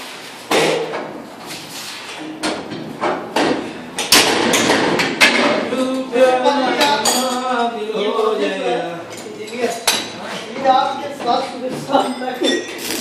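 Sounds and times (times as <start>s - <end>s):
men's voices: 5.3s - 12.8s.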